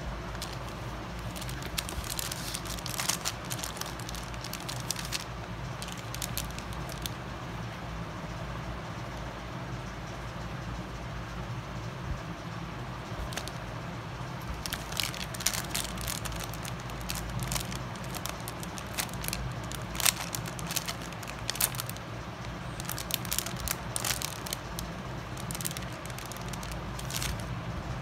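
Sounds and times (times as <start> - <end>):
steady low hum: 0.0 - 28.0
plastic bag crinkling: 0.2 - 7.2, 13.2 - 13.6, 14.4 - 27.5.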